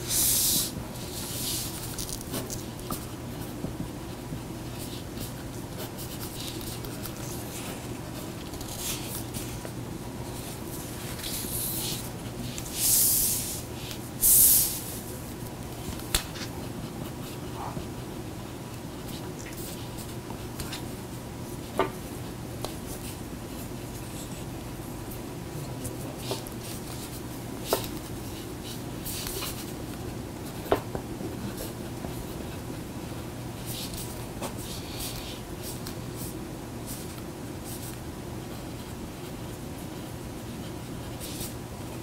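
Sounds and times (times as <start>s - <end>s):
low room hum: 0.0s - 42.0s
pens scratching on paper: 0.1s - 15.1s, 25.8s - 41.6s.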